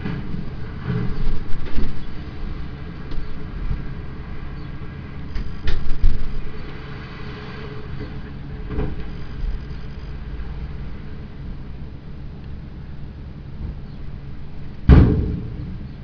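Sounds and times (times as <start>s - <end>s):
rubble sliding: 0.0s - 4.2s
diesel engine running: 0.0s - 16.0s.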